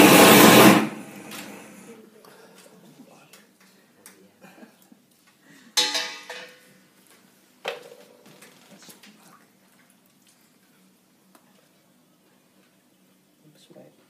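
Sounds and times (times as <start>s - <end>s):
metal torch clattering down: 5.8s - 6.7s.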